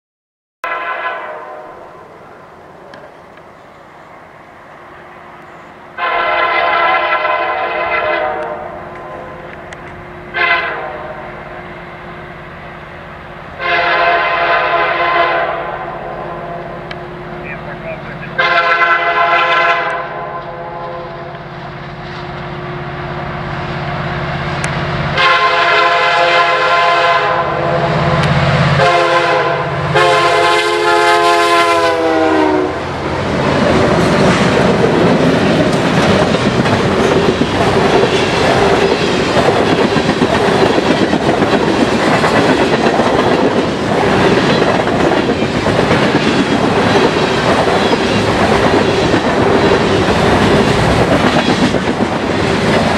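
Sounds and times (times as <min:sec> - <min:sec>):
locomotive air horn blasts: 0:00.6 - 0:02.1, 0:06.0 - 0:09.5, 0:10.3 - 0:11.4, 0:13.6 - 0:16.9, 0:18.3 - 0:21.4, 0:25.2 - 0:32.8
locomotive engine rumble: 0:16.0 - 0:19.2
train wheels clacking over rail joints: 0:33.4 - 0:52.9.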